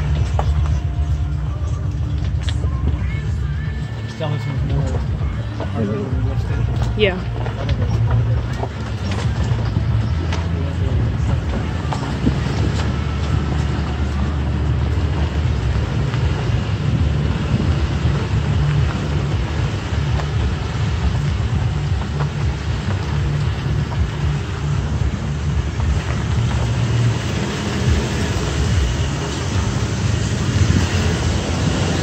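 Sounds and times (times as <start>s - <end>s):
pickup engine rumble: 0.0s - 32.0s.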